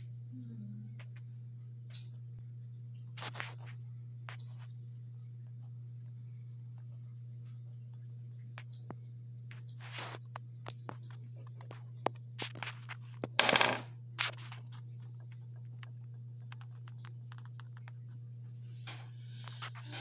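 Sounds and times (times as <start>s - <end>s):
low electrical hum: 0.0s - 20.0s
coins clicking on wooden table: 13.3s - 13.9s.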